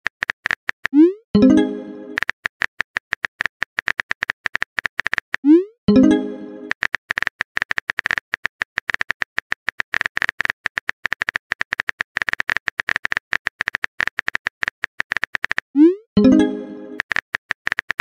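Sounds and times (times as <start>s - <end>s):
keyboard typing clicks: 0.2s - 18.0s.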